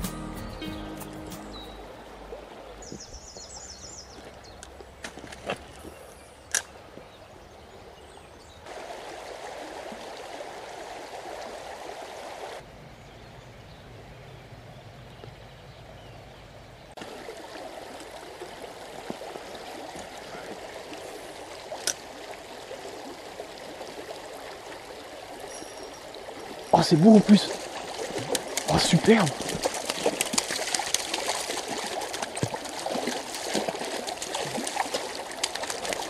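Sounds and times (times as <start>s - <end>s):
river rushing over gravel: 8.7s - 12.6s, 19.9s - 36.0s.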